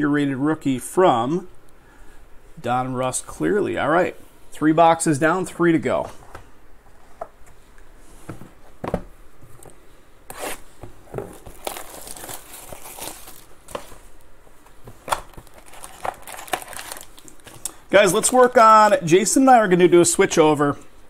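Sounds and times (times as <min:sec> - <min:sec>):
plastic wrap crinkling and tearing: 0:11.3 - 0:14.0, 0:15.0 - 0:17.8.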